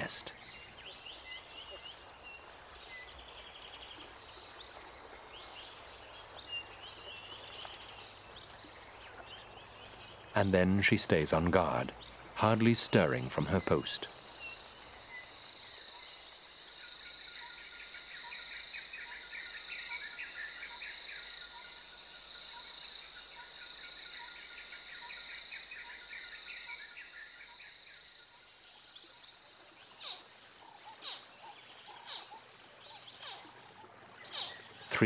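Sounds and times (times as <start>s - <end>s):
chattering bird calls: 0.0s - 0.4s, 29.9s - 35.0s.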